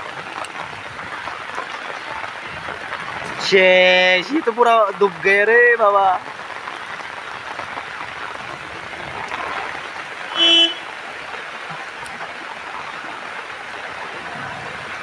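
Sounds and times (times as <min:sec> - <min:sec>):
rain hissing on flooded street: 0:00.0 - 0:15.0
vehicle horn toot: 0:10.3 - 0:10.9.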